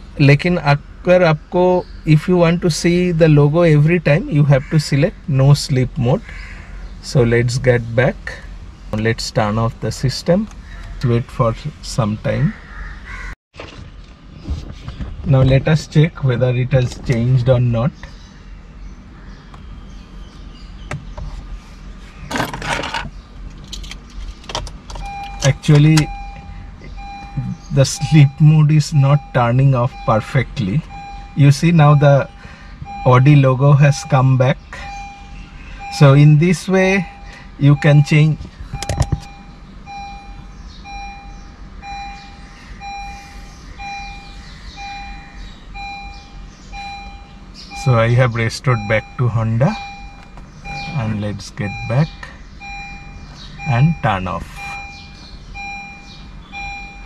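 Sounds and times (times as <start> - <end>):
low steady rumble: 0.0 - 12.8, 13.6 - 57.0
low hum in car cabin: 0.0 - 57.0
electronic warning beeper: 25.0 - 57.0.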